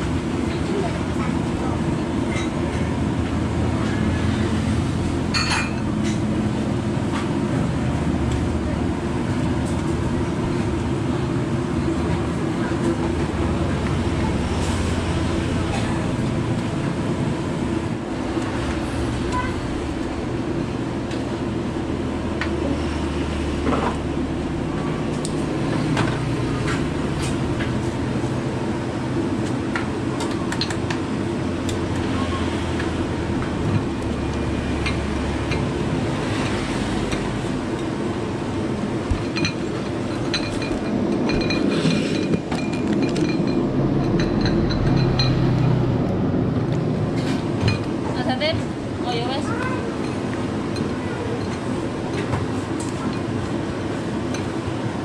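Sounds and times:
utensils clinking against bowls: 0:05.3 - 0:06.3, 0:39.2 - 0:45.5, 0:50.0 - 0:53.3.

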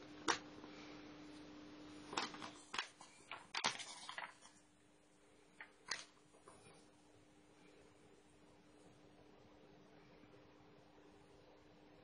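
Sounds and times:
faint steady hum: 0:00.0 - 0:12.0
magazine pages rustling: 0:02.0 - 0:04.6, 0:05.6 - 0:06.7.

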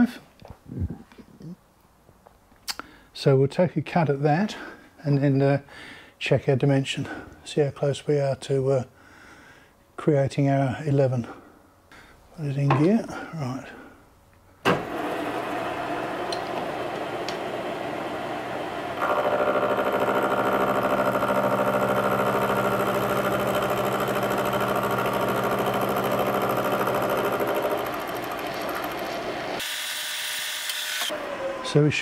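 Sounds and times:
milling machine cutting metal: 0:14.9 - 0:31.2.

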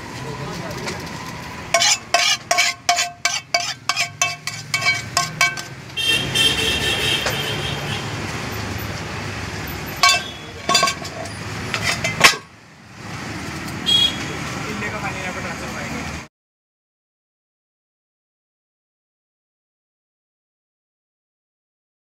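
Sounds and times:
street traffic: 0:00.0 - 0:16.3
metal spoon clinking on pan: 0:01.7 - 0:06.0, 0:10.0 - 0:12.5.

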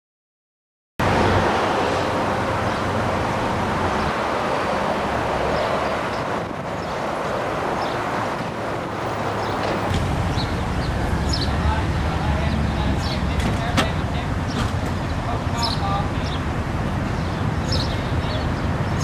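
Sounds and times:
street traffic rushing: 0:01.0 - 0:19.0.

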